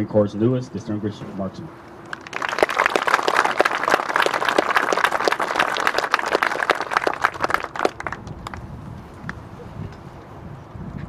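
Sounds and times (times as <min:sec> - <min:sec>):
crowd applauding: 0:02.0 - 0:08.7
sharp hand claps close by: 0:02.1 - 0:08.6.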